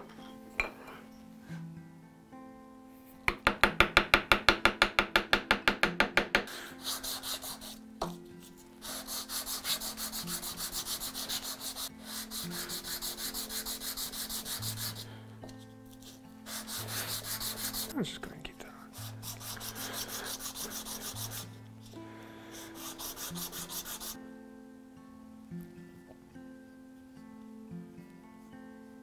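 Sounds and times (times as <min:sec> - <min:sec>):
mallet tapping a gouge: 0:03.2 - 0:06.5
wood rubbed on sandpaper: 0:06.5 - 0:07.8, 0:08.4 - 0:15.1, 0:16.0 - 0:18.0, 0:19.0 - 0:21.6, 0:22.5 - 0:24.2.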